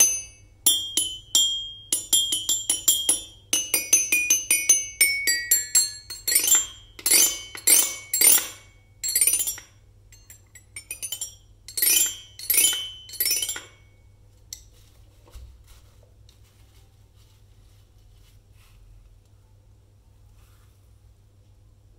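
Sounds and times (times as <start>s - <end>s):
toy xylophone notes: 0.0s - 14.0s.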